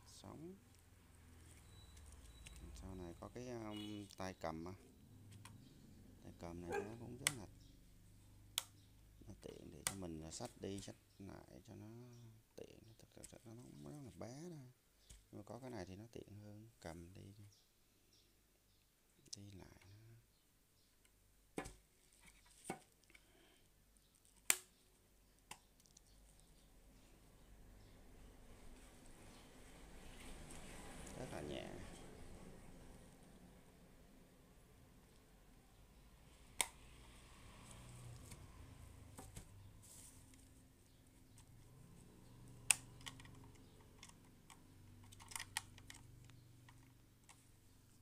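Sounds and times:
plastic clicks of radio handling: 42.7 - 46.1.

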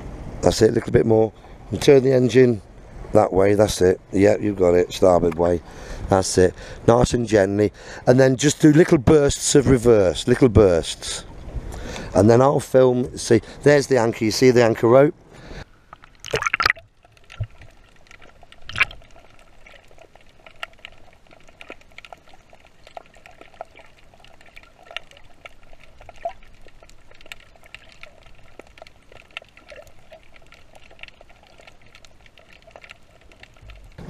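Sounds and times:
faint steady hum: 0.0 - 8.6
muffled underwater wash: 0.0 - 34.0
small clicks and crackles: 5.0 - 5.5, 15.8 - 34.0.

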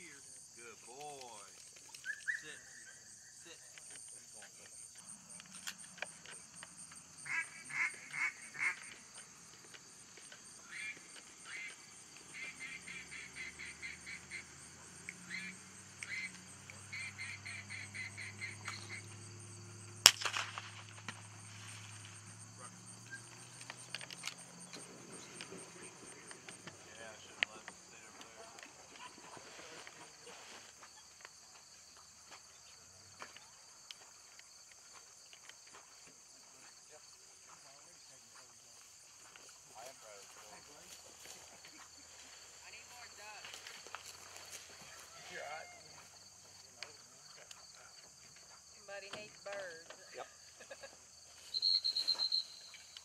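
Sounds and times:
insects chirring: 0.0 - 53.0
loud duck quacks: 7.2 - 9.0.

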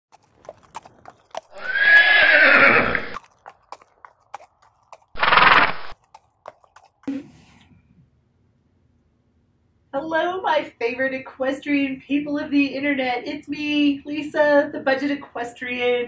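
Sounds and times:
horse neighing: 1.5 - 3.2, 5.1 - 6.0.

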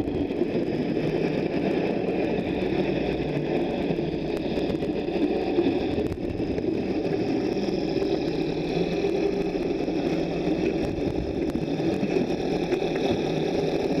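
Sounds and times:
underwater polishing disc whirring: 0.0 - 14.0.

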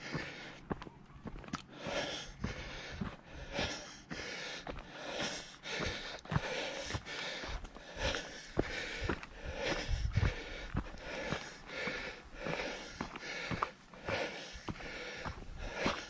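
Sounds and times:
person breathing: 0.0 - 0.8, 1.6 - 16.0
footsteps on stony dirt trail: 0.0 - 16.0.

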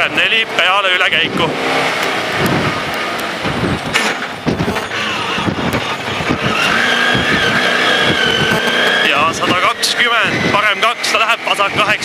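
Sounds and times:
car engine revving through gears: 0.3 - 12.0
tyre squeal: 4.7 - 10.5.

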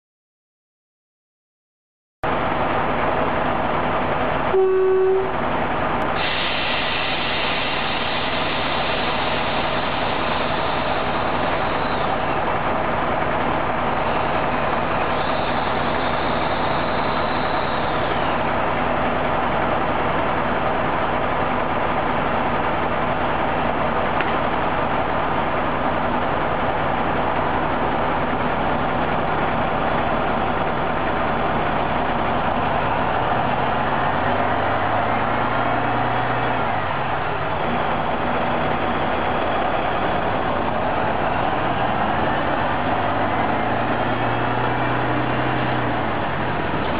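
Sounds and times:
railcar engine running: 2.2 - 46.9
brief steady tone: 4.5 - 5.4, 15.1 - 18.4.

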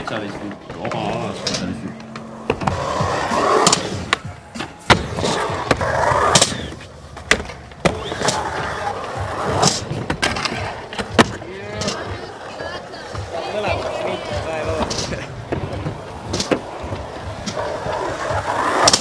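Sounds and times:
skateboard clacks: 0.0 - 19.0
skateboards rolling on concrete: 0.0 - 19.0
skateboard grinding on metal ledge: 0.1 - 6.8.

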